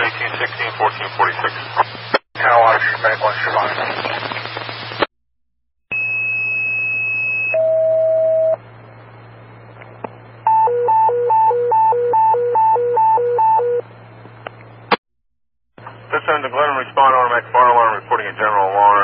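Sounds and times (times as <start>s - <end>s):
dispatcher voice: 0.0s - 4.5s, 15.8s - 19.0s
radio hiss: 0.0s - 5.1s, 15.8s - 19.0s
two-tone pager tones: 10.5s - 13.8s.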